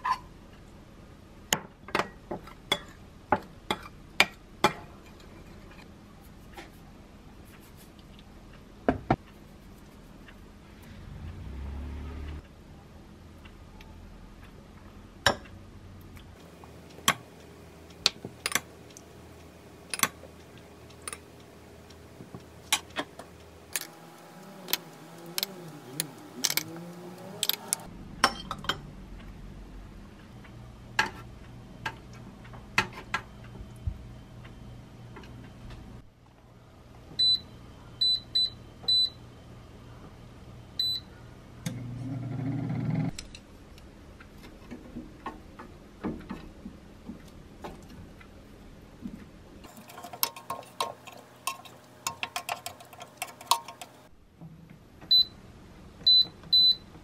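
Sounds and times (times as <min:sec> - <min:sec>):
air fryer fan running: 0:16.4 - 0:27.9, 0:49.6 - 0:54.2
metal spoon clinking ceramic bowl: 0:49.7 - 0:54.0.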